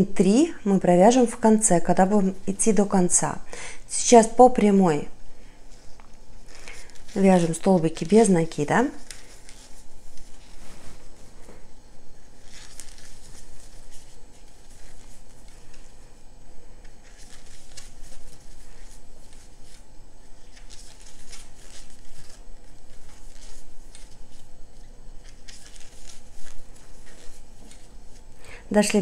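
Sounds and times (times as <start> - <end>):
cord rustling and scraping: 5.7 - 28.4.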